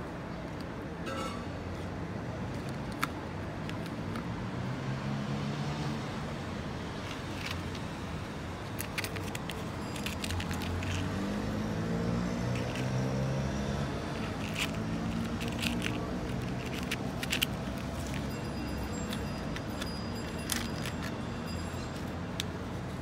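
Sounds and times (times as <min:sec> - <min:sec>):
plastic containers clicking: 0:14.2 - 0:18.3.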